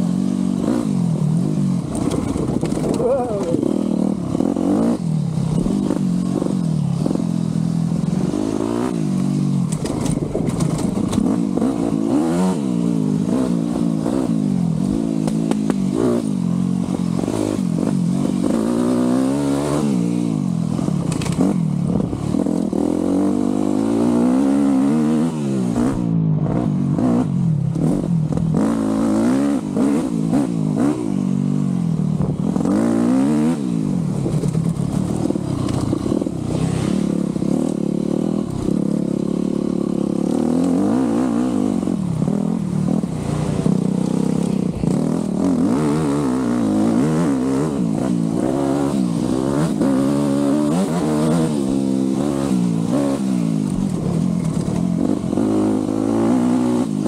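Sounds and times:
two-stroke dirt bike engine revving: 0.0 - 57.0
bike knocking and rattling: 1.8 - 3.6, 9.2 - 11.7, 34.2 - 36.5.

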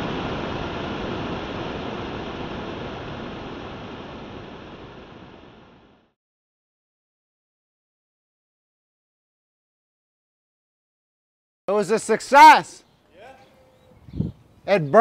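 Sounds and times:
steady rushing roar: 0.0 - 6.1.

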